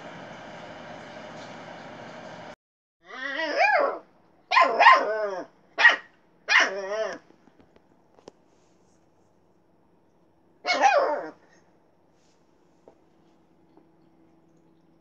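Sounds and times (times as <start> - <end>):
puppy barking: 3.3 - 7.2, 10.6 - 11.4.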